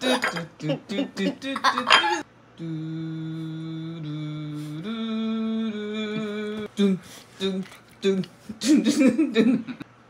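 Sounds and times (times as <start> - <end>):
chant-like voice holding notes: 2.6 - 8.3.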